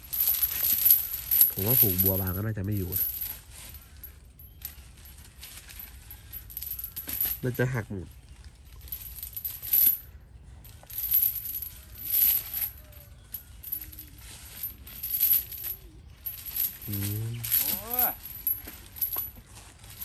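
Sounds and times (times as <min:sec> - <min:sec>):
metal chain clinking and rattling: 0:00.0 - 0:20.0.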